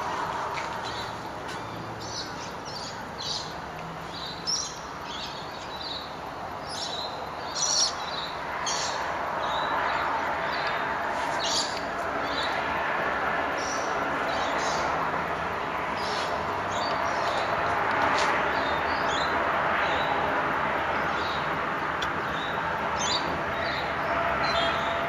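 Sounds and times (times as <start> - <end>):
birds chattering: 0.6 - 12.6, 13.6 - 20.2.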